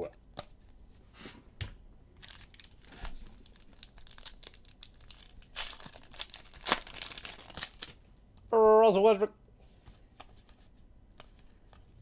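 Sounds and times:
foil wrapper crinkling and tearing: 2.2s - 8.0s.

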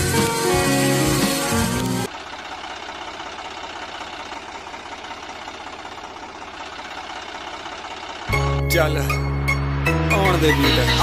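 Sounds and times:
model tractor motors whirring: 0.0s - 8.3s.

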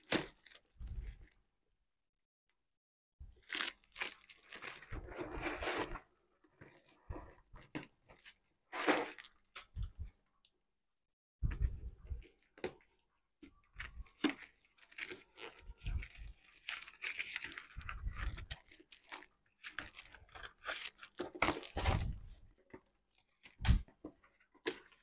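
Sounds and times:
cardboard crunching and tearing: 3.4s - 6.0s, 14.1s - 22.2s.

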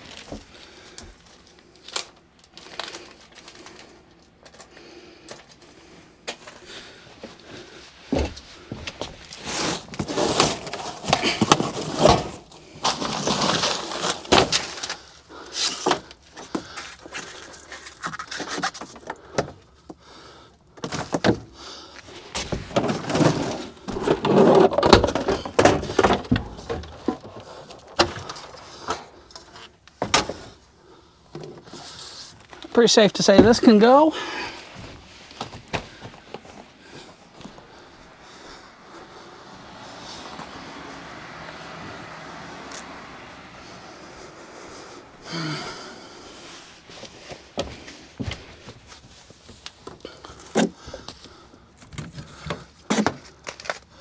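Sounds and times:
objects knocking and clattering: 22.4s - 30.5s
rustling: 33.5s - 54.0s.

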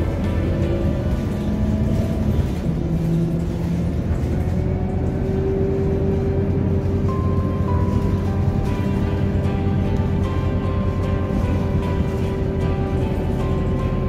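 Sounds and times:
bus engine rumble: 0.0s - 14.0s
music with slow held notes: 4.3s - 14.0s.

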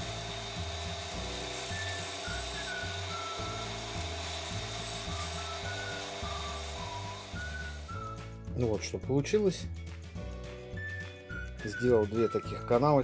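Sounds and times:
belt grinder grinding tile: 0.0s - 8.1s
background music: 0.0s - 13.0s.

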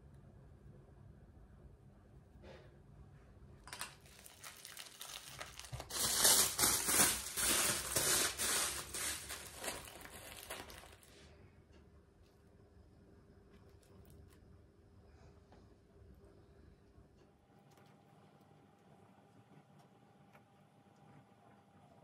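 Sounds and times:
crinkling and rustling with crackles: 3.6s - 12.5s, 13.4s - 14.7s.

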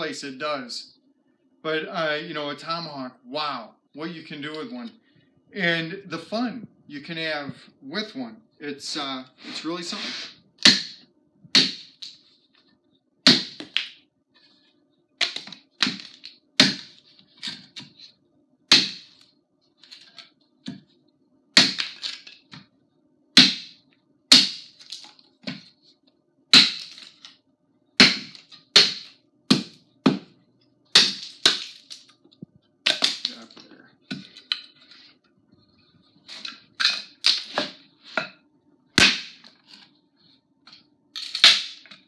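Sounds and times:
tomahawk chopping wood: 10.6s - 11.0s, 11.6s - 12.2s, 13.3s - 13.9s, 15.2s - 17.9s, 18.7s - 19.2s, 21.6s - 22.3s, 23.4s - 25.6s, 26.6s - 27.2s, 28.0s - 30.3s, 31.0s - 32.0s, 32.9s - 33.4s, 39.0s - 39.5s, 41.2s - 42.0s.

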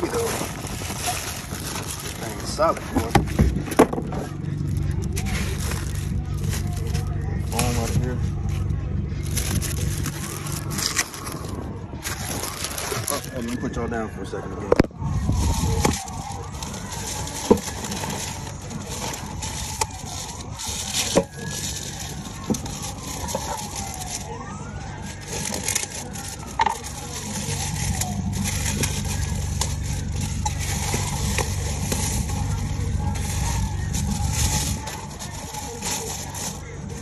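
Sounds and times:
siren wailing: 9.0s - 37.0s.

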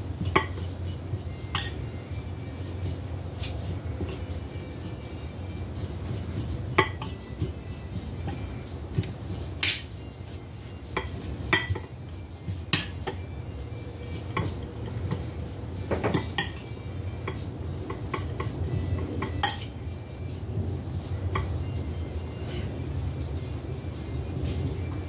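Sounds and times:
metal spoon scraping a ceramic bowl: 0.2s - 2.0s, 3.4s - 13.3s, 16.1s - 17.4s, 18.2s - 19.8s
spoon clinking on bowl: 1.5s - 1.9s, 16.1s - 16.8s, 19.2s - 19.7s.

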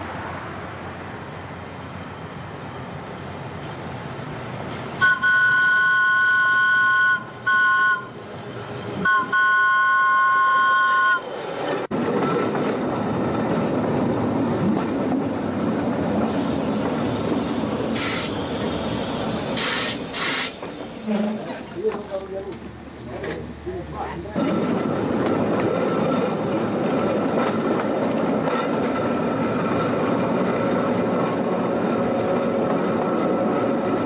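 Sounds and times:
tram rumbling on rails: 0.0s - 34.0s
tram two-tone horn: 5.0s - 8.2s, 9.0s - 11.3s.

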